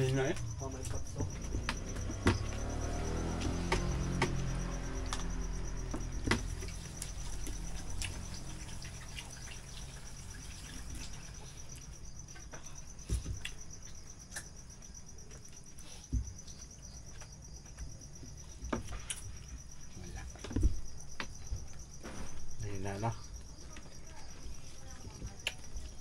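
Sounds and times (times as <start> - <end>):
crickets chirping: 0.0 - 26.0
soft clicks and knocks of eating: 11.8 - 19.5.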